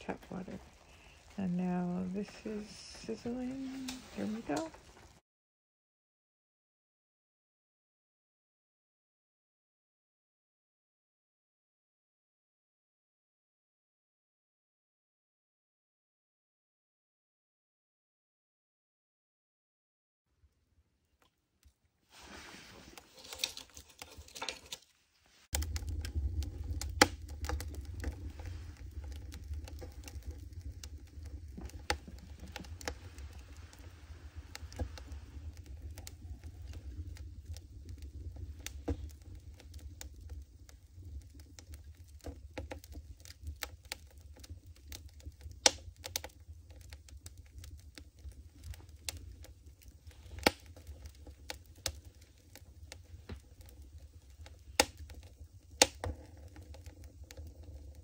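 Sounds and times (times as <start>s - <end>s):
low fire rumble: 0.0s - 5.2s, 21.6s - 58.0s
wood fire crackling and popping: 0.0s - 5.2s, 20.5s - 58.0s.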